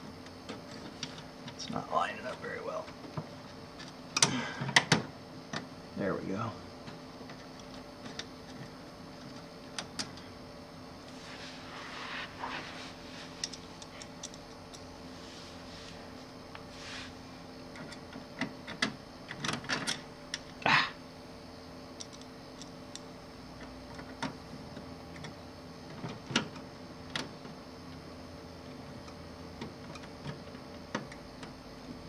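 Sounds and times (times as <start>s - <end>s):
faint steady hum: 0.0s - 32.0s
clicks and taps of parts: 13.4s - 14.9s, 22.0s - 27.3s.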